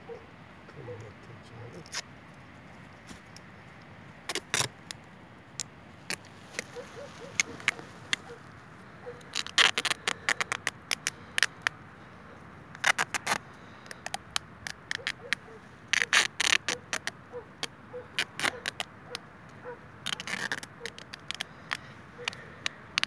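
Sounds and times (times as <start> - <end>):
adhesive tape crackling: 3.8 - 11.8, 12.7 - 23.0.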